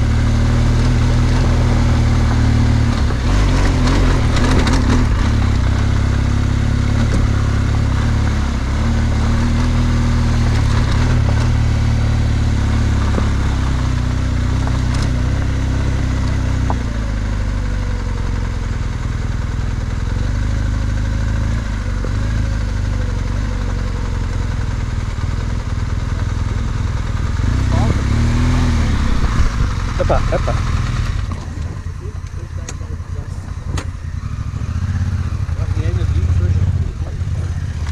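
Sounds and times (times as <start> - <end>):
motorcycle engine at low revs: 0.0 - 37.9
stones clattering under tyres: 14.4 - 15.6.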